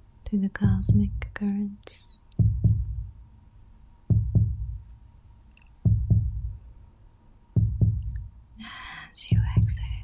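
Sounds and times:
slow heartbeat: 0.6 - 1.3, 2.4 - 3.2, 4.1 - 4.9, 5.8 - 6.6, 7.6 - 8.3, 9.3 - 10.0.

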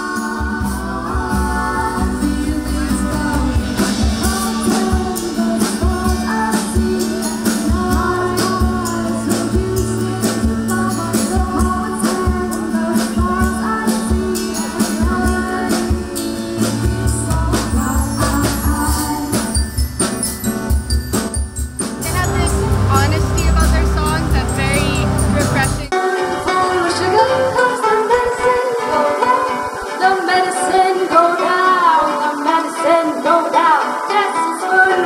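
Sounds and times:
women singing together: 0.0 - 19.8, 25.4 - 35.0
acoustic guitar: 0.0 - 35.0
percussive beat: 17.3 - 25.9
glockenspiel: 17.7 - 25.9.

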